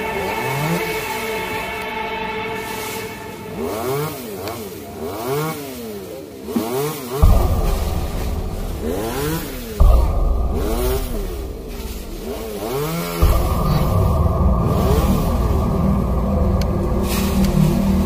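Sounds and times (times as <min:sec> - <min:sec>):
chainsaw engine revving: 0:03.3 - 0:18.0
low rumble: 0:07.2 - 0:18.0.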